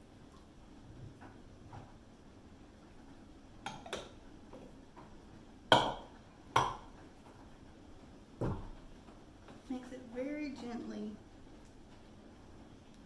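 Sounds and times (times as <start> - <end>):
bowl knocking on dish: 5.7 - 6.9.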